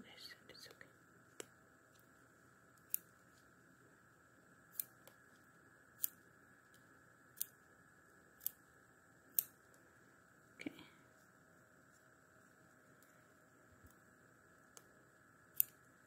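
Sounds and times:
faint steady hum: 0.0s - 16.0s
scissors snipping: 2.8s - 3.1s, 4.7s - 5.2s, 6.0s - 6.2s, 15.6s - 15.8s.

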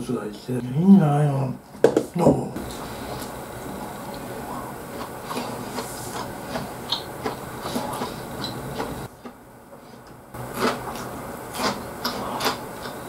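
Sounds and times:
person chewing food: 2.6s - 13.0s.

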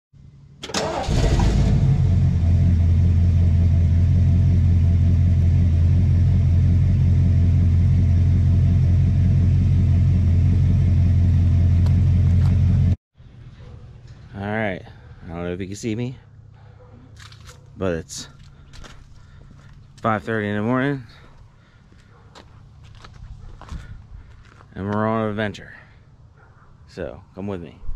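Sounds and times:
truck engine starting and idling: 0.6s - 13.0s.

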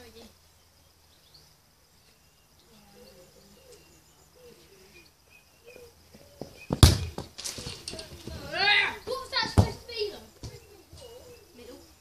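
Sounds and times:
bird chirps: 0.4s - 7.8s, 9.0s - 12.0s
loud sharp thud: 6.7s - 7.4s.

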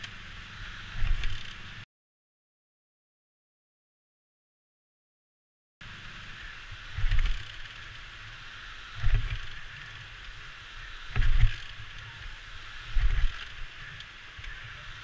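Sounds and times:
motorcycle engine running at low speed: 0.0s - 1.8s, 5.8s - 15.0s.

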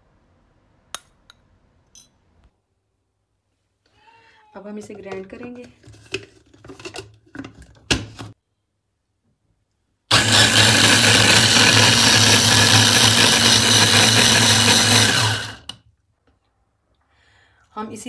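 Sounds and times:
electric hand blender motor: 10.1s - 15.7s.

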